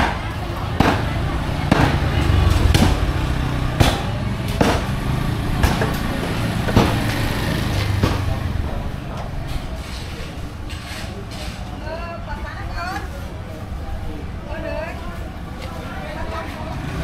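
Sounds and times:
sharp knocks: 1.7 - 7.2.

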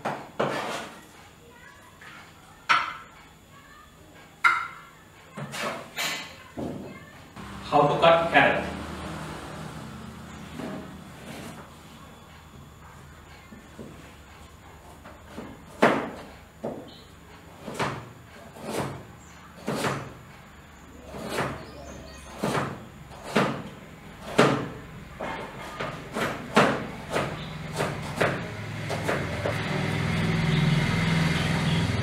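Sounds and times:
knife chopping carrot: 15.3 - 16.8, 17.5 - 19.0, 19.6 - 20.2, 21.1 - 21.7, 22.3 - 24.8, 25.5 - 29.5.

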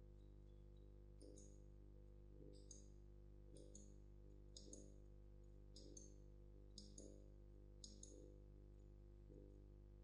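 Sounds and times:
computer mouse clicks: 2.5 - 2.9, 3.5 - 5.0, 5.7 - 6.2, 6.8 - 7.2, 7.8 - 8.3.

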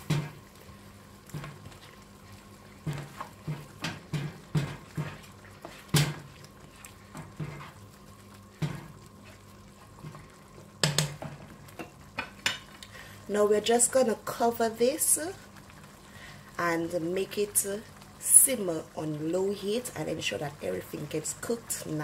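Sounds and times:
spoon knocking and scraping pan: 0.0 - 0.5, 1.2 - 2.0, 2.7 - 7.9, 8.5 - 12.7
sauce sloshing: 0.3 - 10.8.

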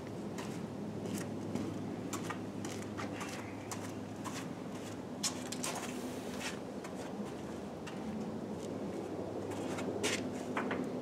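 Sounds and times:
footsteps scuffing on concrete: 0.4 - 8.8.

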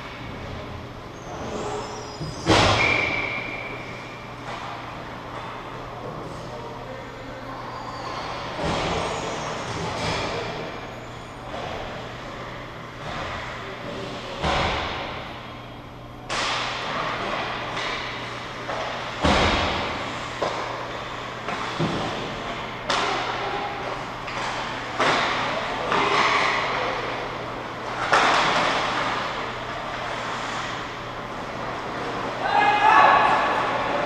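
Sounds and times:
steady low hum: 0.0 - 32.4
hockey sticks and puck clacking: 4.4 - 5.6, 16.3 - 34.0
hits against rink boards: 24.3 - 26.8, 27.9 - 29.4.

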